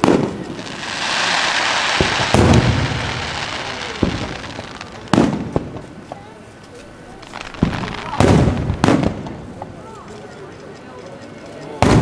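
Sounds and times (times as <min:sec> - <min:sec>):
firework booms: 0:00.0 - 0:06.3, 0:07.3 - 0:09.8, 0:11.8 - 0:12.0
firework crackling hiss: 0:00.0 - 0:09.8.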